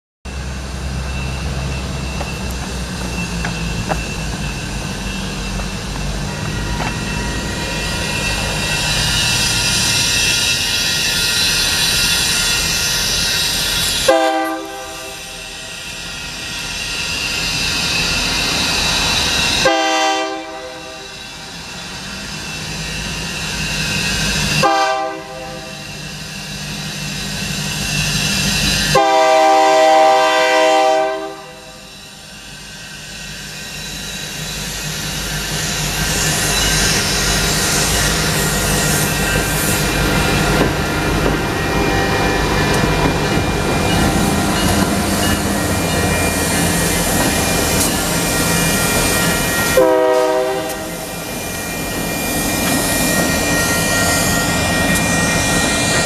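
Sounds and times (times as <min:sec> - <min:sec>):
diesel locomotive rumbling: 0:00.3 - 0:56.0
train air horn: 0:14.0 - 0:15.6, 0:19.6 - 0:21.2, 0:24.6 - 0:25.9, 0:28.9 - 0:31.9, 0:49.7 - 0:51.1.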